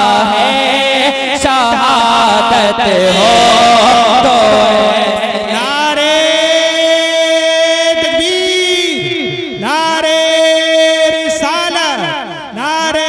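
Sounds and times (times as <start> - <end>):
steady drone: 0.0 - 10.0
wordless devotional chanting: 0.0 - 13.0.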